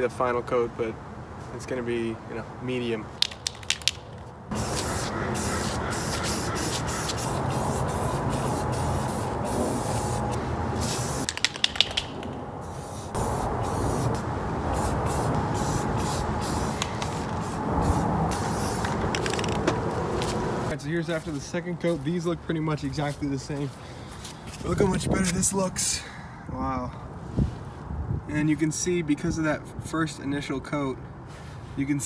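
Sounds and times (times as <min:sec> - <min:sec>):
sharp clicks: 0:03.2 - 0:04.2, 0:11.2 - 0:12.4
spray paint can hissing: 0:03.2 - 0:19.6.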